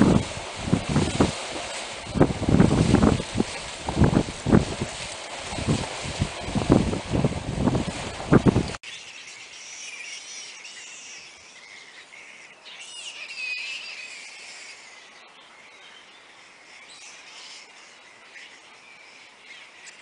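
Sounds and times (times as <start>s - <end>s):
fruit bats squeaking and screeching: 8.9s - 15.1s.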